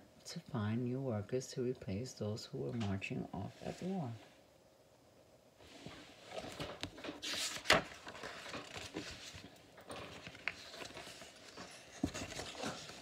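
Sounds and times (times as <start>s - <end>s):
book pages rustling and flapping: 5.7s - 13.0s
hands tapping and rubbing book: 5.8s - 13.0s.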